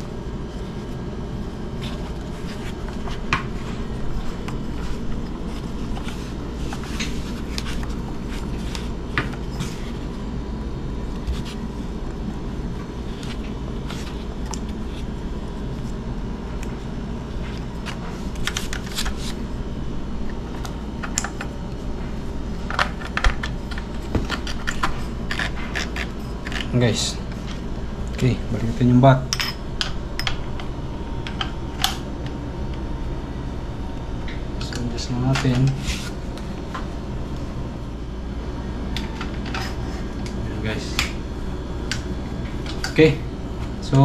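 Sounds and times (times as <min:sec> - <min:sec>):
rustling of wires: 0:00.0 - 0:29.0
steady background hum: 0:00.0 - 0:44.0.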